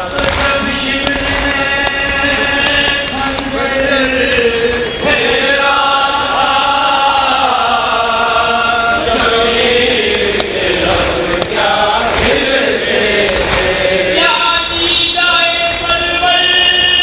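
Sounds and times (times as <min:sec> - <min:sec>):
group of voices chanting: 0:02.4 - 0:14.6.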